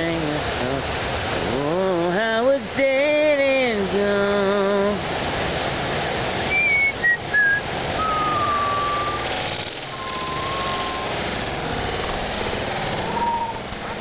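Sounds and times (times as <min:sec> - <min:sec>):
steady rushing noise: 0:04.5 - 0:14.0
high whistled notes: 0:06.5 - 0:09.3, 0:09.9 - 0:11.2, 0:12.9 - 0:13.7.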